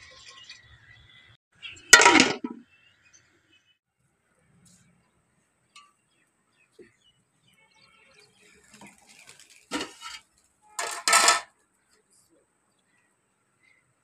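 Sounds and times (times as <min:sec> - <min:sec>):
metal plate and pot lid clattering: 0:02.0 - 0:02.6, 0:09.7 - 0:10.2, 0:10.8 - 0:11.5.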